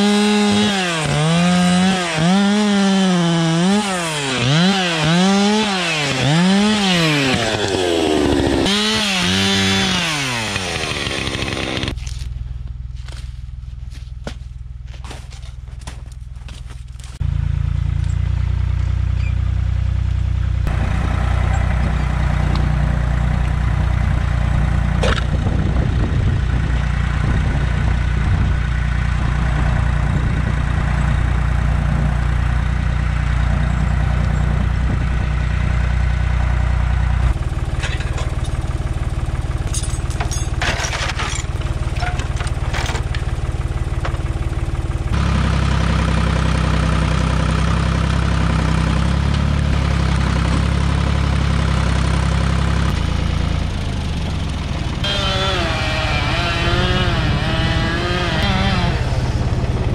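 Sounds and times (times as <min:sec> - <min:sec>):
chainsaw revving: 0:00.0 - 0:12.2, 0:55.0 - 0:59.9
tractor engine running: 0:00.0 - 0:59.9
sharp knocks and rattles: 0:37.3 - 0:44.6.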